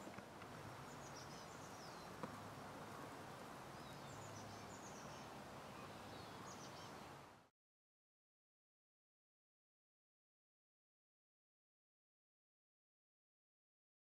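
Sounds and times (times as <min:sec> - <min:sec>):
steady low hiss: 0:00.0 - 0:07.5
distant bird chirps: 0:00.8 - 0:02.5.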